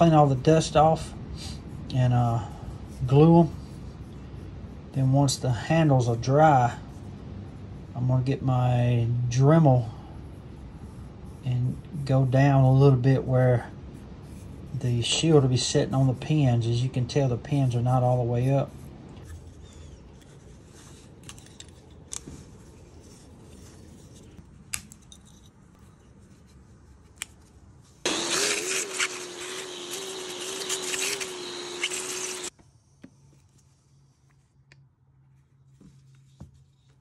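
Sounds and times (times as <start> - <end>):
small electric motor whining: 28.0 - 32.5.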